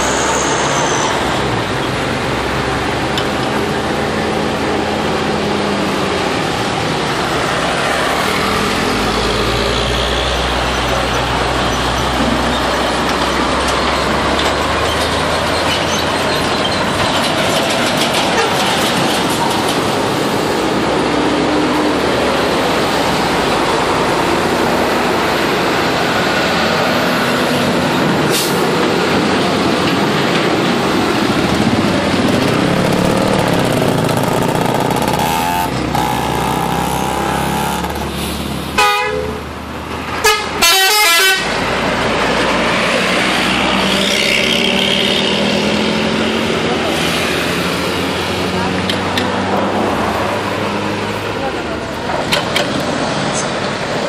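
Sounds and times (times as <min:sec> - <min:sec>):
road traffic: 0:00.0 - 0:54.0
multi-note bus horns: 0:38.8 - 0:39.5, 0:40.2 - 0:41.6.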